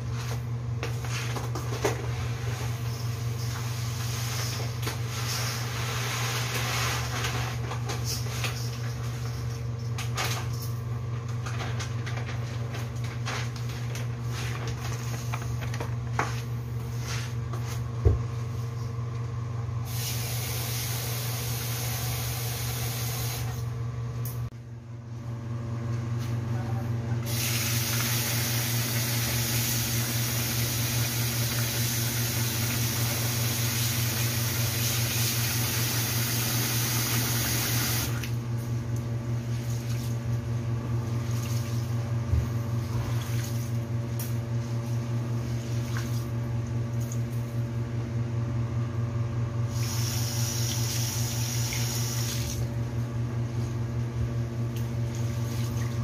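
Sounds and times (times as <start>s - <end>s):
steady low hum: 38.1s - 56.0s.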